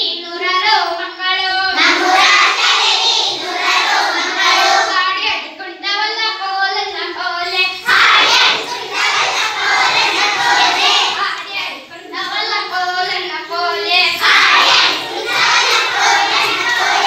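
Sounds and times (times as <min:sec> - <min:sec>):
children singing in unison: 0:01.7 - 0:05.1, 0:07.4 - 0:17.0.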